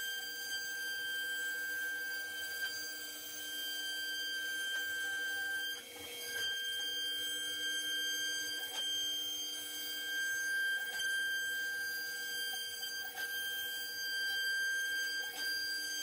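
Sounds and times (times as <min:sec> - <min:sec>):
router motor high whine: 0:00.0 - 0:16.0.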